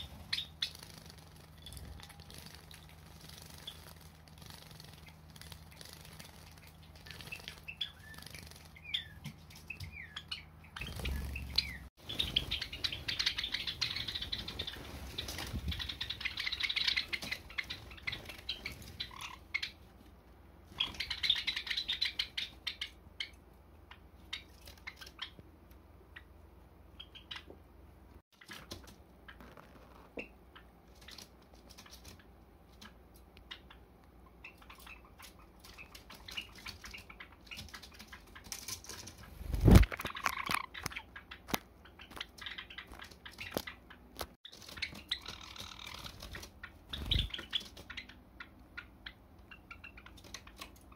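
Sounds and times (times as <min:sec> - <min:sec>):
wing flutters: 0:00.0 - 0:09.7, 0:10.8 - 0:19.2, 0:35.2 - 0:40.8.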